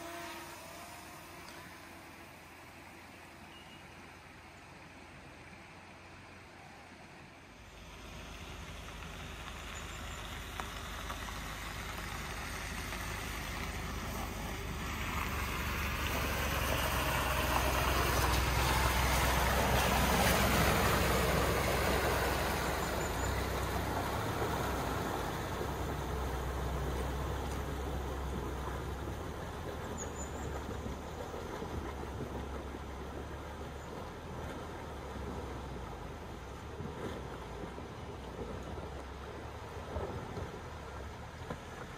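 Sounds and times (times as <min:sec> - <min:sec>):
broad rush of noise: 0:00.0 - 0:27.4
vehicle engine running: 0:07.6 - 0:41.9.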